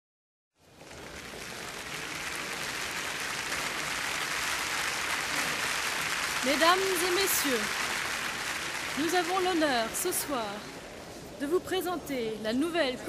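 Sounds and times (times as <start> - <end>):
crowd clapping: 0.6 - 10.9.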